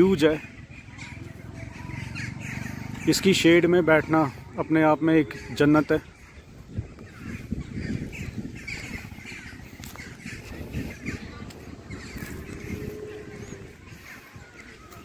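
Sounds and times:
birds chirping and calling: 0.0s - 15.0s
microphone handling rumble: 6.5s - 14.0s.

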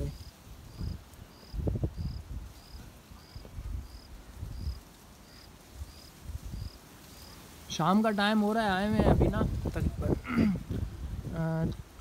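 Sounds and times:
cricket chirping: 0.0s - 7.5s.

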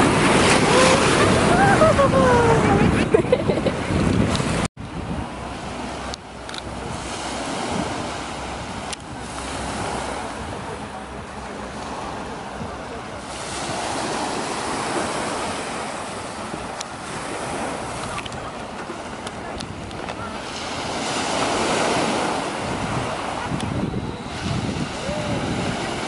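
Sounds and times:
waves washing on pebbles: 0.0s - 1.9s, 5.5s - 10.6s, 13.2s - 26.0s
wind on microphone: 0.0s - 26.0s.

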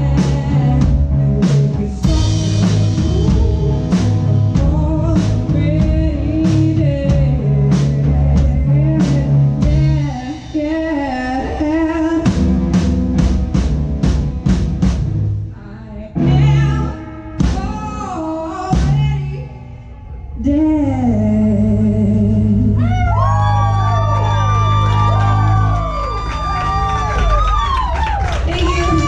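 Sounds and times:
woman singing: 0.0s - 12.5s, 15.5s - 23.3s, 28.4s - 29.0s
live band playing: 0.0s - 15.6s, 16.2s - 20.5s, 22.8s - 29.0s.

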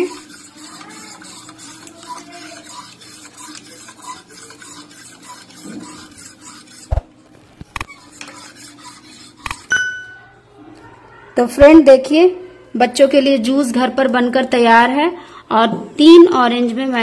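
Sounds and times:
metal spoon scraping bowl: 0.0s - 7.0s, 7.8s - 9.8s.

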